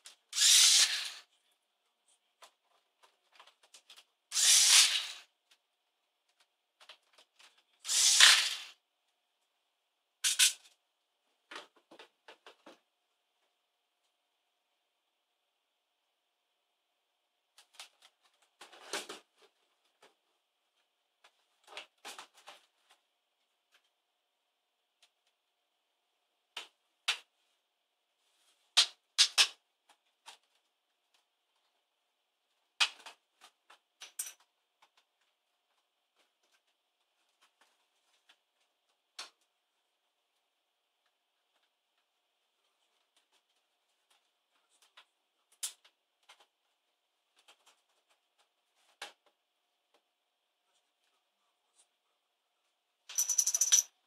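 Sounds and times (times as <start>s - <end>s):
electric screwdriver running: 0.4s - 1.2s, 4.4s - 5.2s.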